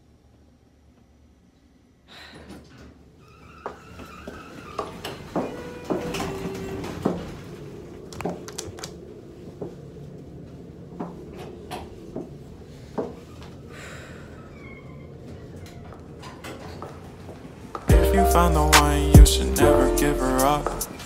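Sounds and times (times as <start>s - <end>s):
elevator doors sliding: 3.0s - 21.0s.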